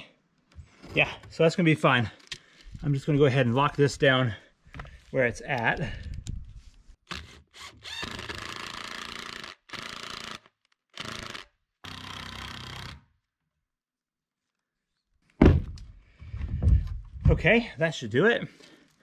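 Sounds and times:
cordless drill driving screws: 7.1s - 13.1s.

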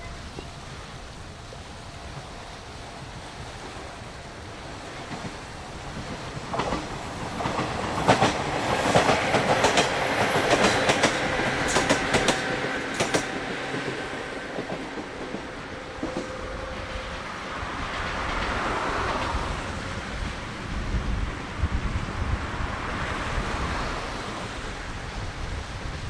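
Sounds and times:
electric train passing: 0.0s - 26.0s
wheels clacking over rail joints: 4.4s - 20.6s.

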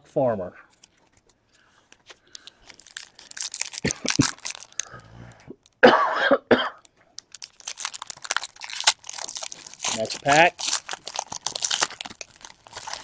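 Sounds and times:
wrapper crinkling and tearing: 2.0s - 5.0s, 5.6s - 5.8s, 7.2s - 13.0s
person coughing: 3.8s - 4.3s, 5.8s - 6.8s.

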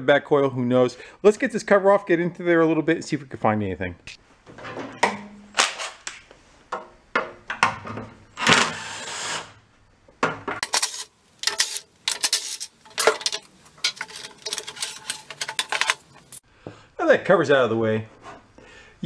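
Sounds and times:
metal tools clinking: 10.6s - 16.4s.

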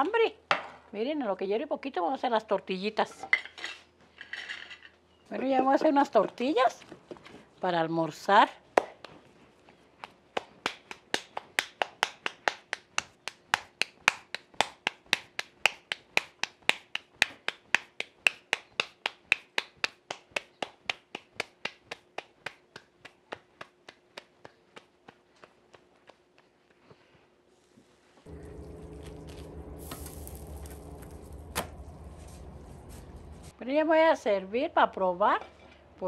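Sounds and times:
hands patting dough: 10.0s - 27.2s.

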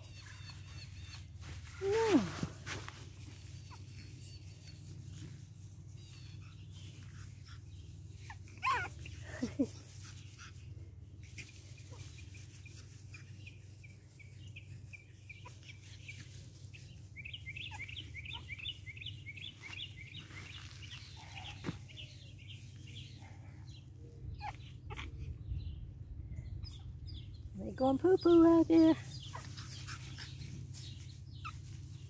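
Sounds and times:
low steady rumble: 23.2s - 28.3s.

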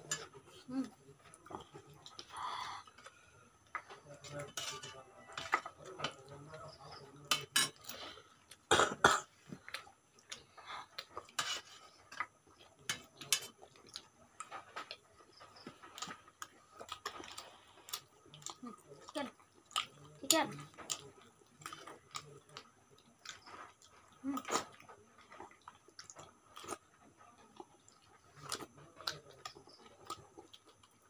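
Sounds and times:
spoons clinking on steel dish: 4.5s - 5.6s.

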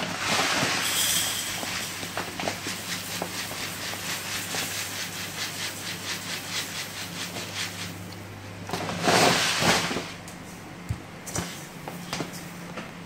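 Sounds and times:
rice grains pouring into pot: 0.0s - 8.0s.

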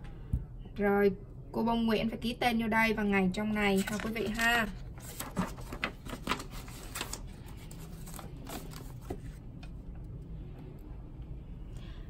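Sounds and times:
paper pages rustling: 3.7s - 9.4s.

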